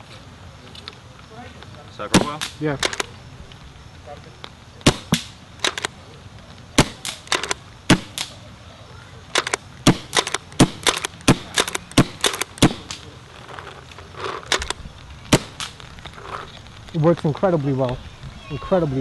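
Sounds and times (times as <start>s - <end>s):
paintball gun firing: 2.1s - 3.1s, 4.8s - 5.9s, 6.8s - 8.4s, 9.3s - 13.1s, 14.4s - 15.8s.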